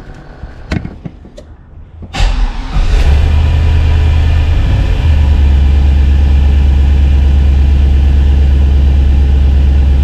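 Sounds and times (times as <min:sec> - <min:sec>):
car engine idling: 0:02.1 - 0:10.0.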